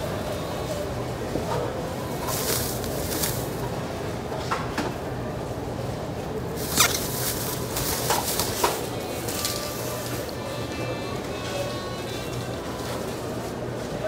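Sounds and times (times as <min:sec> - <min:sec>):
steady background hum: 0:00.0 - 0:14.0
plastic bag crinkling: 0:02.2 - 0:03.6, 0:06.5 - 0:10.2.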